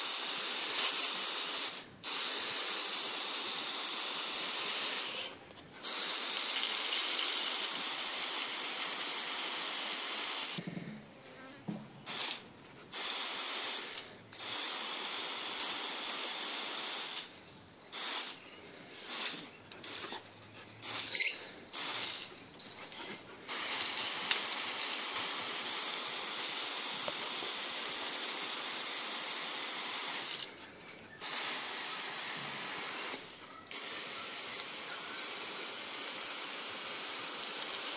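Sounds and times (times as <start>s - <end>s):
hose spray hissing on lawn: 0.0s - 10.6s, 12.0s - 30.6s, 31.2s - 37.9s
short high squeaks: 19.4s - 21.5s, 22.6s - 23.2s, 31.2s - 31.6s.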